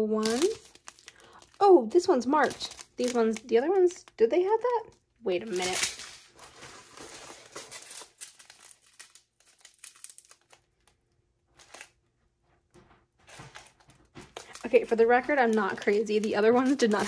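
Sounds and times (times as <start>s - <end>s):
plastic bags crinkling: 0.0s - 12.0s, 13.3s - 17.0s.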